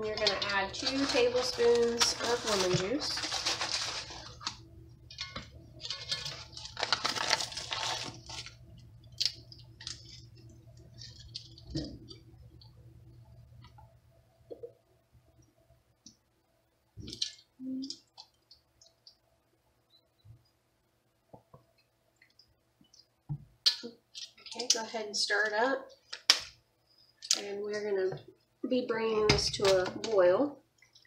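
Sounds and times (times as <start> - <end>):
paper packet crinkling: 0.0 - 4.7, 5.8 - 10.4
faint low hum: 0.0 - 31.0.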